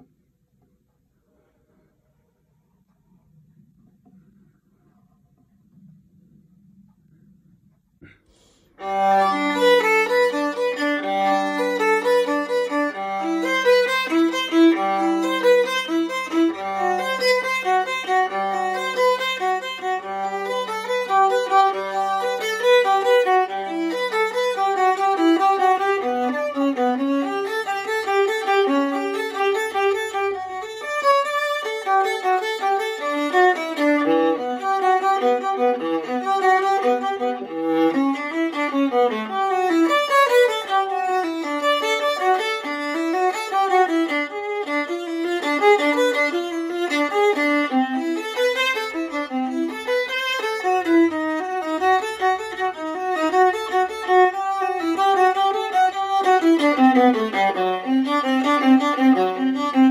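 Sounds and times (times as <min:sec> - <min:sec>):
viola bowed melody: 0:08.8 - 0:59.9.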